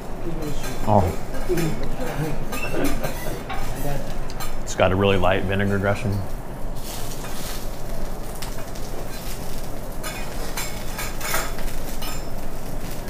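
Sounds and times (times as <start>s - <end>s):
griddle sizzling: 0.0s - 13.0s
metal utensils clinking and scraping: 0.4s - 4.7s, 8.4s - 13.0s.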